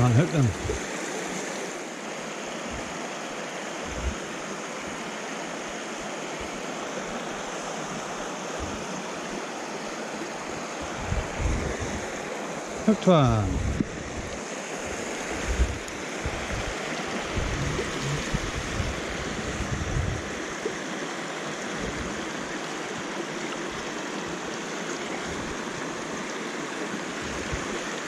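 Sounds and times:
stream running over rocks: 0:00.0 - 0:28.0
bumps on microphone: 0:17.4 - 0:18.6.

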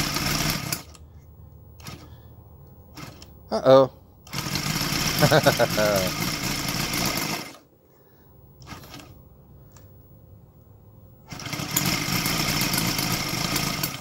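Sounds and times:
model radial engine running: 0:00.0 - 0:01.0, 0:04.3 - 0:07.6, 0:11.3 - 0:14.0.

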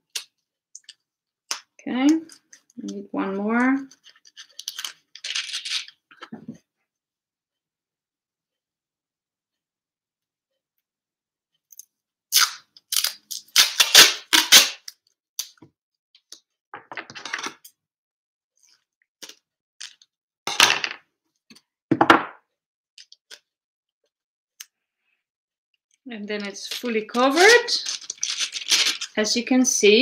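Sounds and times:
duct tape ripping off roll: 0:12.3 - 0:14.9.

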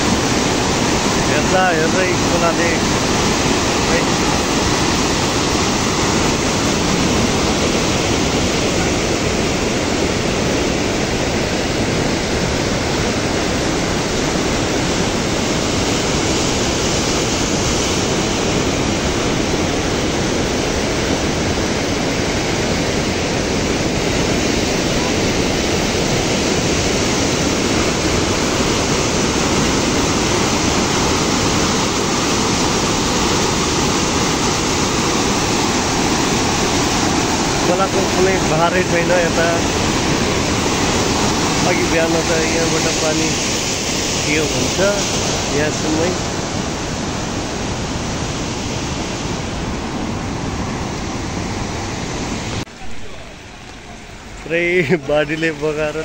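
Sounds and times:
floodwater rushing: 0:00.0 - 0:56.0.

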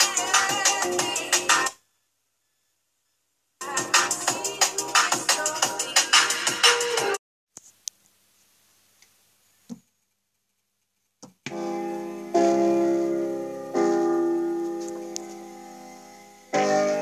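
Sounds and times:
piano chords from a speaker: 0:11.5 - 0:17.0.

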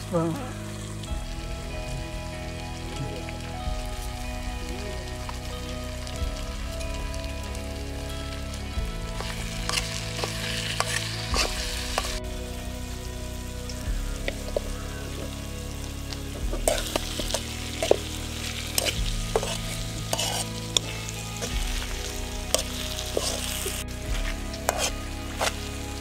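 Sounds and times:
curry sizzling in a pan: 0:00.0 - 0:26.0
low hum: 0:00.0 - 0:26.0
metal spatula scraping a pan: 0:18.8 - 0:20.6, 0:24.6 - 0:25.6.

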